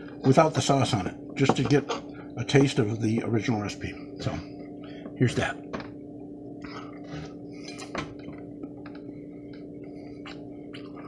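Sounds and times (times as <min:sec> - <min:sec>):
steady low hum: 0:00.0 - 0:11.0
man chewing food: 0:06.6 - 0:11.0.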